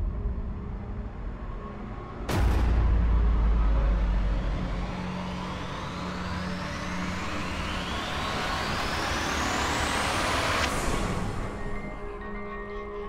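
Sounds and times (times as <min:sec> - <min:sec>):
low hum: 0:00.0 - 0:12.4
hissing noise sweep rising: 0:03.4 - 0:11.8.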